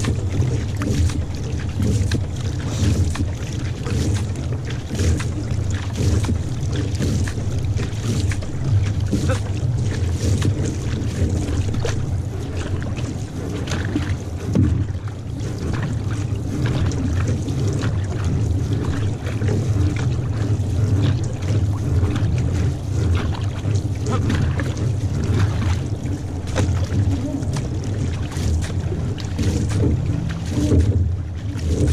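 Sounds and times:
paddle splashes: 0.0s - 31.9s
water rushing along hull: 0.0s - 31.9s.

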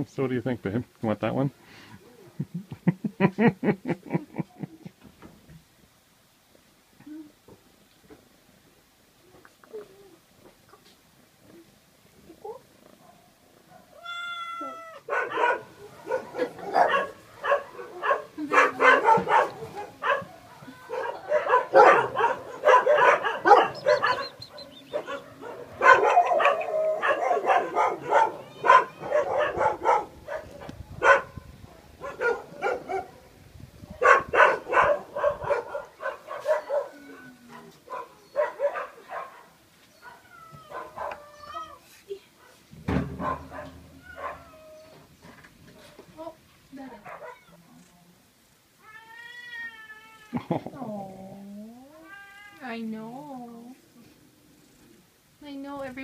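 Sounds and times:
cats meowing: 13.9s - 15.1s, 20.4s - 21.4s, 28.0s - 29.7s, 36.6s - 37.7s, 40.0s - 41.9s, 48.8s - 53.3s.

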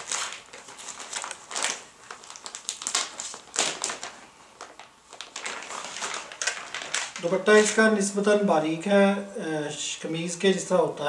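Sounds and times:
cloth and packaging crinkling: 0.0s - 7.9s.

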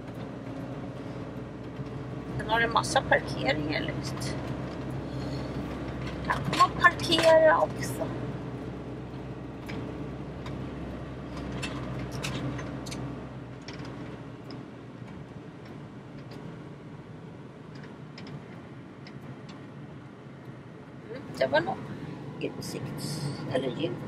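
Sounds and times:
engine low rumble: 0.0s - 24.0s.

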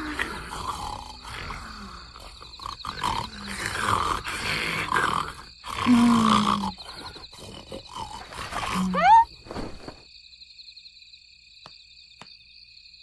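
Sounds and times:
sleepy grunts: 0.0s - 9.1s
cartoon child snoring: 0.0s - 9.3s.

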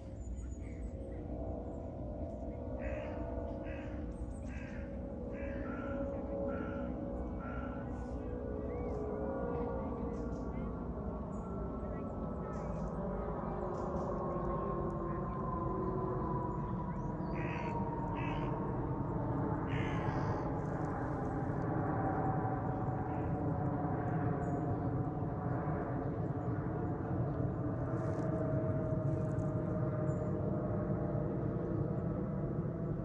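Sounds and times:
jet engines rumbling overhead: 0.0s - 33.0s
crows cawing: 2.8s - 8.9s, 17.2s - 18.7s, 19.6s - 21.2s, 23.1s - 23.4s.

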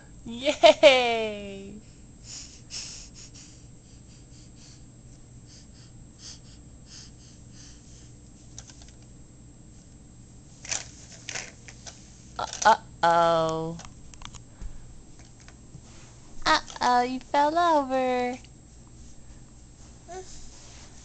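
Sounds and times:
low steady hum: 0.0s - 21.0s
baby breathing and gasping: 5.5s - 8.2s.

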